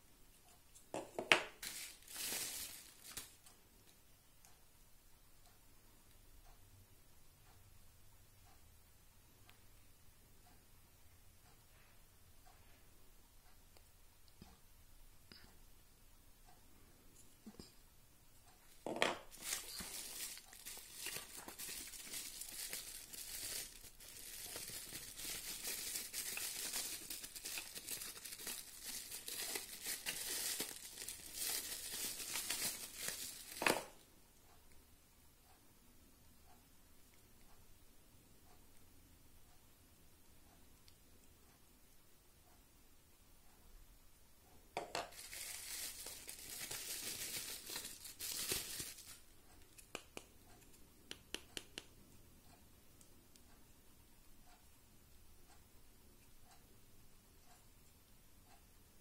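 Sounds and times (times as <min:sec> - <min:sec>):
bubble wrap crinkling: 0:01.2 - 0:03.5, 0:18.8 - 0:34.0, 0:45.0 - 0:49.9.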